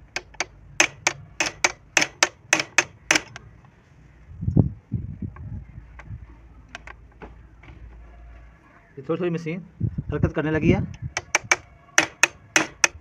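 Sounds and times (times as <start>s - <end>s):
steel rod tapping metal: 0.0s - 3.4s, 11.2s - 13.0s.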